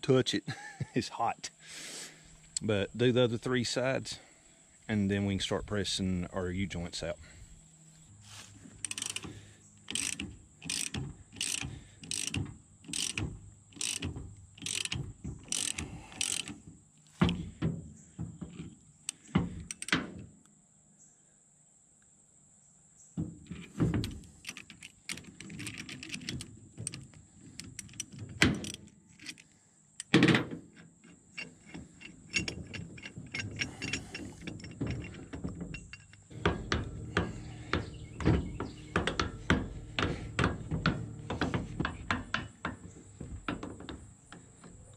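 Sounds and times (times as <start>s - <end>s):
ratchet wrench clicking: 8.8s - 16.6s, 19.1s - 20.0s
sharp metallic knocks: 33.4s - 44.0s.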